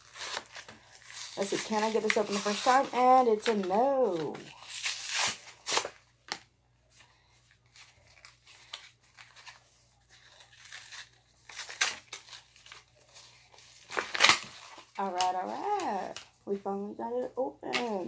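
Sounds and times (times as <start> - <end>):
cardboard packaging tearing: 0.0 - 6.0, 8.1 - 15.0
packaging rustling: 0.0 - 16.4.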